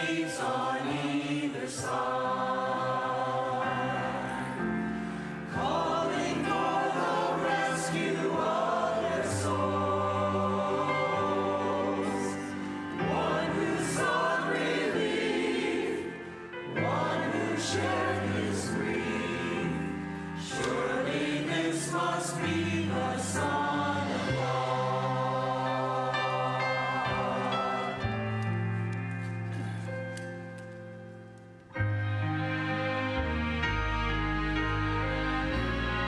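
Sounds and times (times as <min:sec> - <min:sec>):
mixed choir singing: 0:00.0 - 0:28.6.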